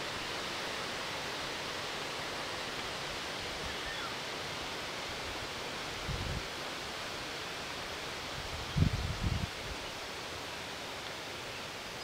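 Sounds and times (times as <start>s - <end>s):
wind rustling through trees: 0.0s - 12.0s
wind on microphone: 6.0s - 6.5s, 8.4s - 9.8s.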